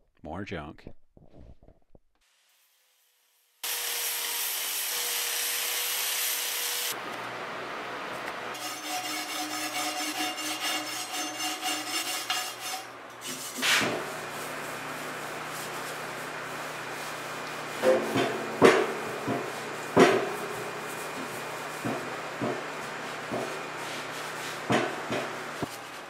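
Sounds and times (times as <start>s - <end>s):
shop vacuum running: 3.6s - 8.6s, 13.2s - 26.0s
scraper rasping on metal: 8.6s - 15.9s
sharp knock: 17.8s - 22.6s.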